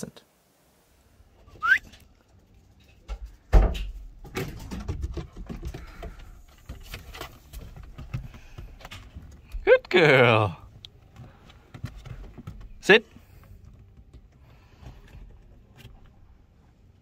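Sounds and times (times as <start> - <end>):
short rising whistle: 1.5 - 2.0.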